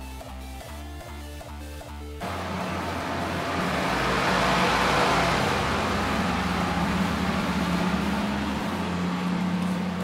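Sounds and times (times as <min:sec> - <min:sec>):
low hum: 0:02.2 - 0:10.0.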